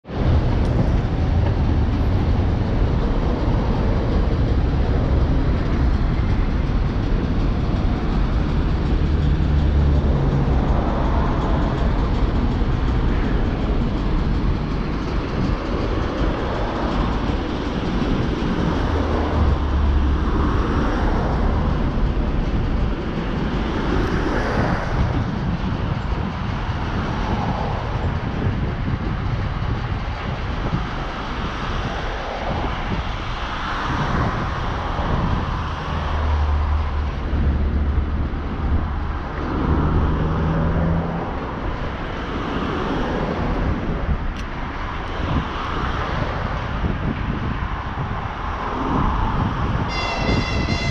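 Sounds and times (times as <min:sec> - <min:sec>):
freight train wheels rumbling: 0:00.0 - 0:50.9.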